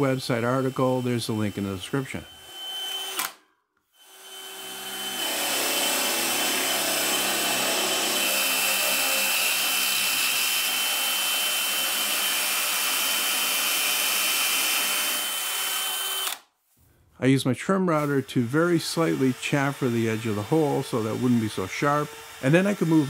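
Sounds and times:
cordless drill whining: 0.2s - 16.4s, 18.0s - 23.0s.

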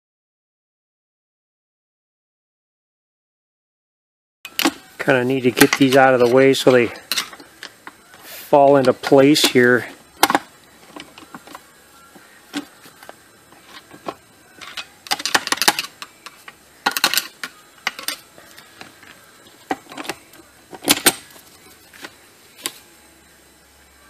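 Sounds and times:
steel parts clinking: 5.5s - 7.8s, 14.5s - 18.3s.

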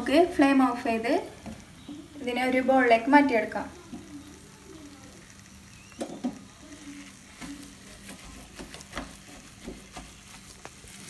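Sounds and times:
spatula stirring thick sauce: 5.2s - 11.0s
spatula knocking pan: 7.2s - 11.0s.

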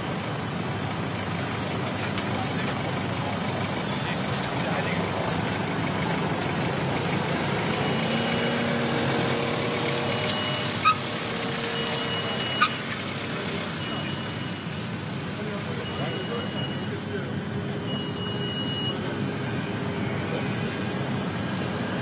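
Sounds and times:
short high beeps: 13.8s - 14.7s, 17.8s - 19.1s
jet engines running: 16.6s - 22.0s.

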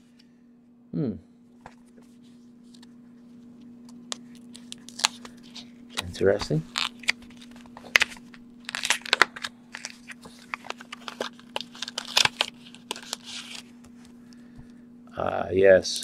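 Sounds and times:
paper rustling and crackling: 4.1s - 14.1s.

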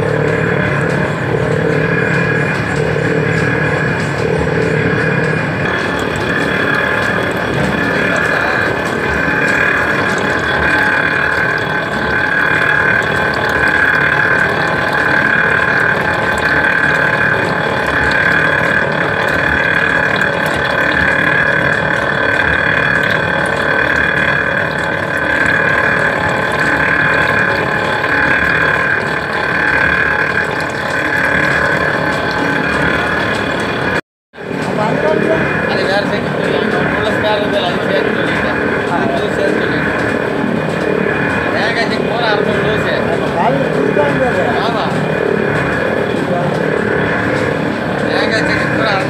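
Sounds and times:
oil press machine whine: 0.0s - 49.0s.

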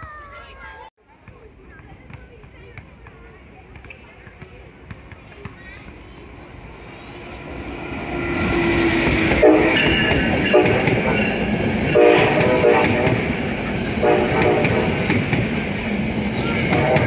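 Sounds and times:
train wheels rumbling and clattering: 5.7s - 17.0s.

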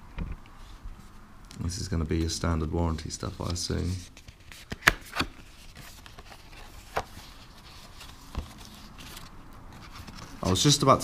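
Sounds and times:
paper rustling: 3.0s - 11.0s.

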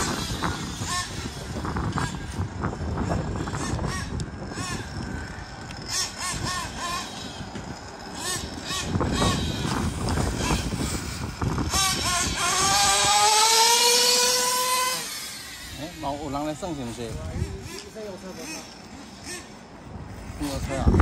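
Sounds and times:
rc car engine revving: 0.0s - 21.0s.

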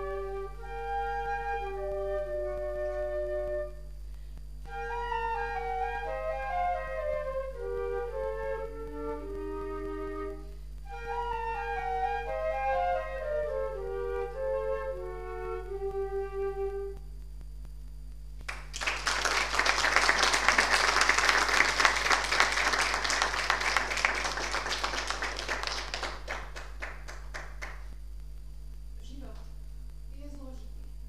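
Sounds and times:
flutes playing: 0.0s - 3.9s, 4.6s - 17.0s
audience clapping: 18.4s - 28.0s.

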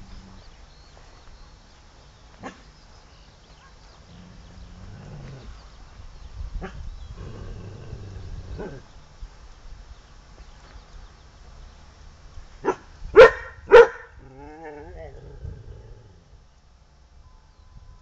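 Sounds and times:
dog barking: 12.6s - 14.2s.

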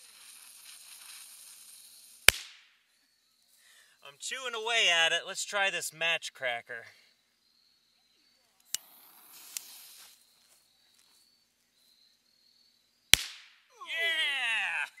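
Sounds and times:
firecracker fuse fizzing: 0.0s - 2.6s, 8.7s - 10.3s.

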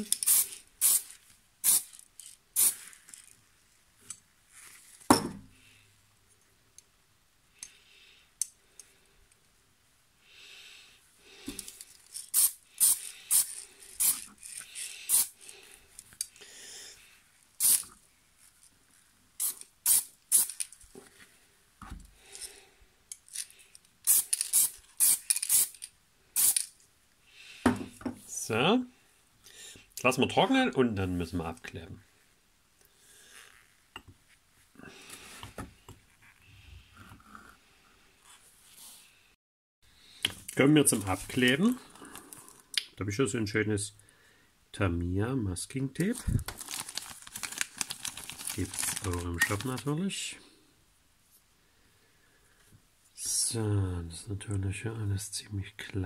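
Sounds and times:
spray can hissing puffs: 0.0s - 2.0s, 2.6s - 2.9s, 12.3s - 15.4s, 17.6s - 17.9s, 19.4s - 20.6s, 24.0s - 26.7s.

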